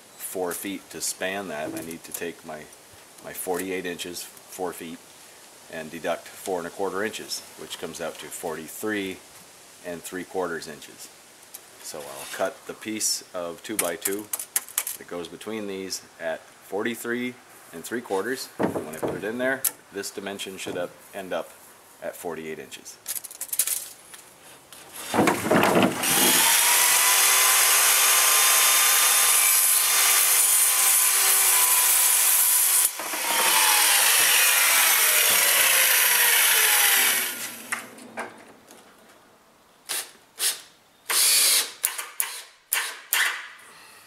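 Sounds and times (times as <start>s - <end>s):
circular saw cutting wood: 25.0s - 37.9s
cordless drill driving screws: 25.9s - 37.8s, 39.9s - 43.5s.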